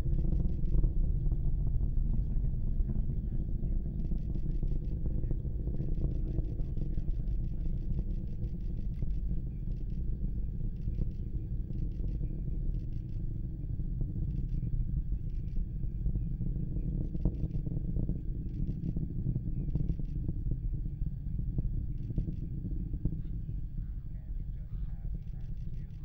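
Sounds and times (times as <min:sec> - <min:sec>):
distant rocket engine rumble: 0:00.0 - 0:26.0.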